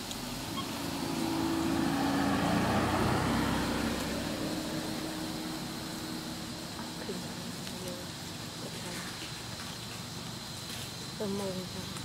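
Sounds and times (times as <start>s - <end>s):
vehicle passing: 0.0s - 9.0s.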